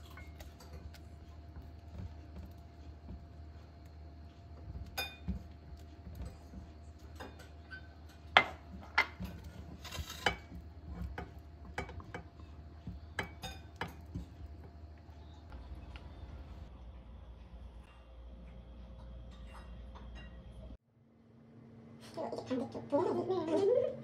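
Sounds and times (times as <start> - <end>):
spatula scraping a wok: 8.8 - 11.2.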